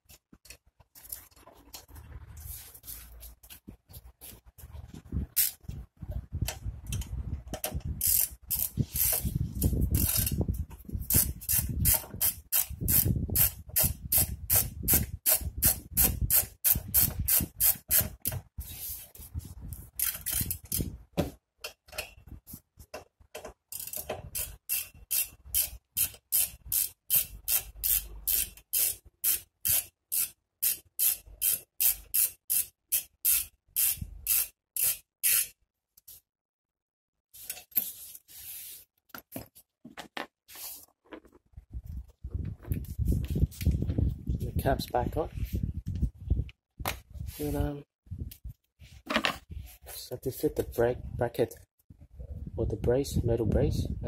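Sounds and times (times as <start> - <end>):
ratchet wrench clicking: 5.4 - 5.6, 6.9 - 10.4, 11.1 - 18.3, 20.0 - 20.9, 23.7 - 35.6.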